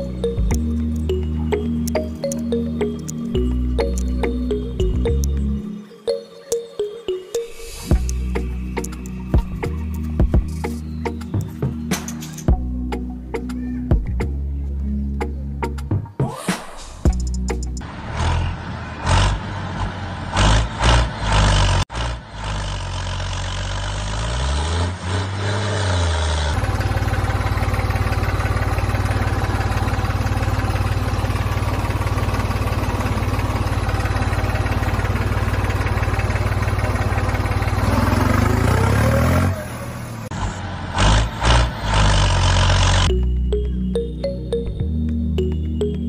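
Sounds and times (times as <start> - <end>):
tractor engine running and revving: 0.0 - 5.7, 7.5 - 13.0, 16.6 - 44.8.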